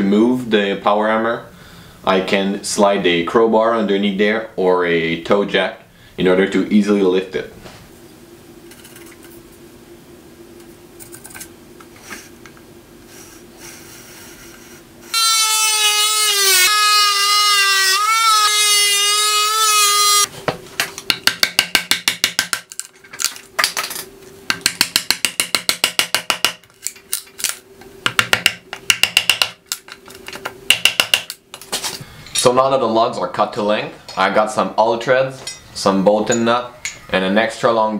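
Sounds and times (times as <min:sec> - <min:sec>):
oscillating multi-tool whine: 0:13.1 - 0:20.3
chisel knocking on wood: 0:21.1 - 0:22.6, 0:24.5 - 0:26.6, 0:28.0 - 0:29.6, 0:30.7 - 0:31.4.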